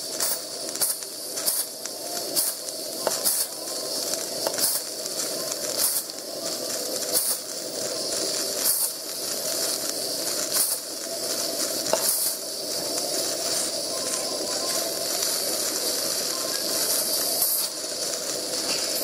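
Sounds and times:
steam pump hissing puffs: 0.0 - 19.0.

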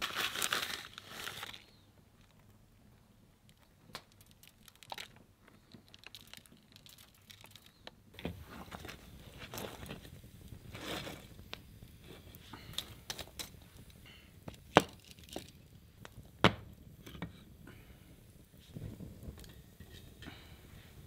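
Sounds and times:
crinkling: 0.0 - 17.9.

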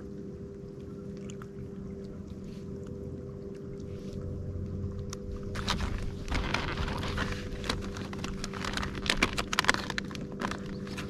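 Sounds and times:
steady low hum: 0.0 - 11.0
fishing tackle rustling and clicking: 4.8 - 11.0.

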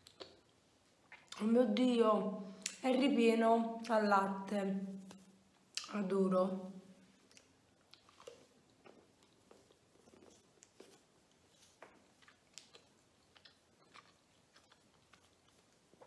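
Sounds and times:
chewing mouth sounds: 0.0 - 1.5, 7.1 - 16.0.

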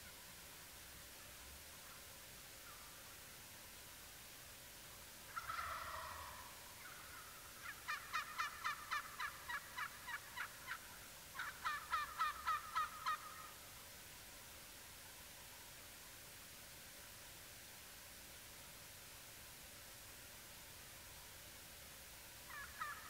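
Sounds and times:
wild turkey calling: 1.2 - 3.2, 4.9 - 13.8, 22.5 - 23.0.

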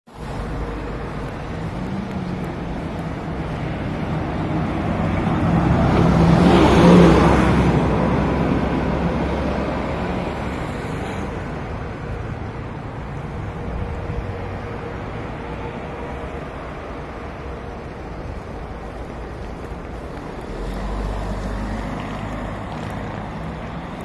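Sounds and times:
low engine hum: 0.1 - 24.0
motor vehicle passing by: 0.2 - 11.3, 19.4 - 24.0.

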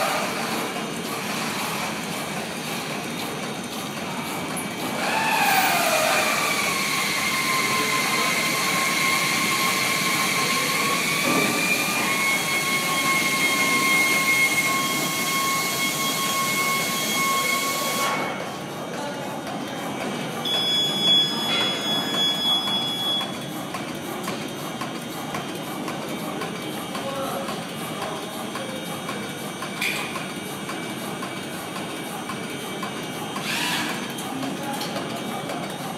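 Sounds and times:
cutting machine hiss and whine: 4.8 - 18.5, 20.2 - 23.5, 27.8 - 34.3.

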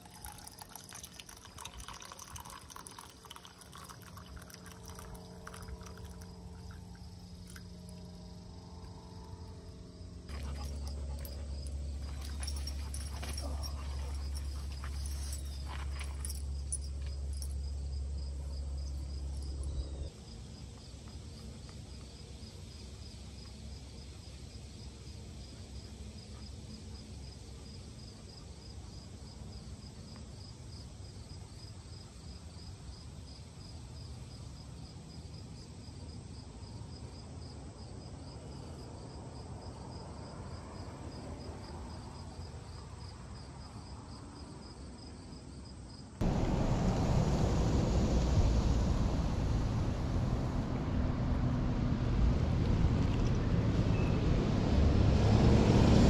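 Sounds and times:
insects trilling: 0.0 - 25.9
low rumble: 5.2 - 20.1, 46.2 - 56.0.

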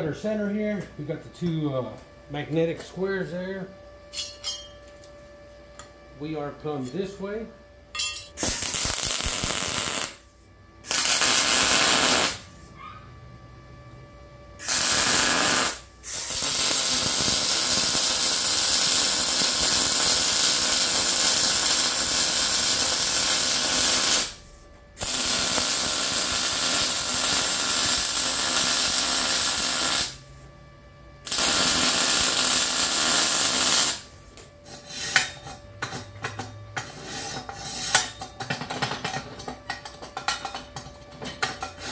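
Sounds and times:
welding arc noise: 8.4 - 12.6, 14.6 - 30.4, 31.2 - 34.5.

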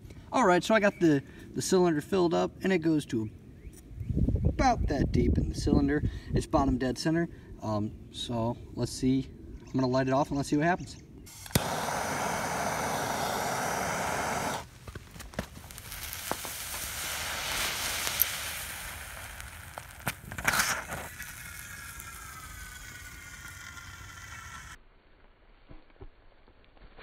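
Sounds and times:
sharp pops: 11.3 - 22.8
thermite hissing and crackling: 11.3 - 24.8.

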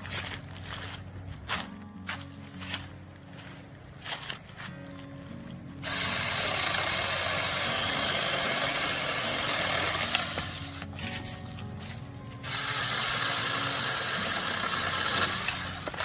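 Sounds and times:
electric chainsaw cutting wood: 5.8 - 11.1, 11.8 - 16.0.

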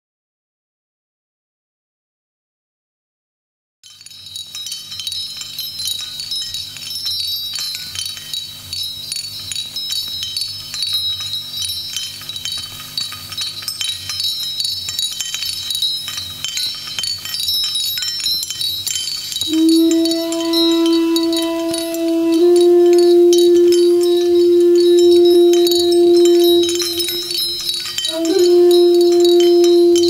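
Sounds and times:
tinkling chimes: 3.8 - 30.0
low steady drone: 19.5 - 30.0.

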